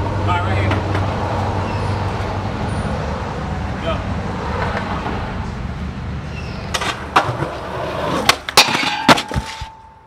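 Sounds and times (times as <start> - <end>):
skateboard wheels rolling on concrete: 0.0 - 10.0
skateboard clacks and slaps: 6.7 - 9.9.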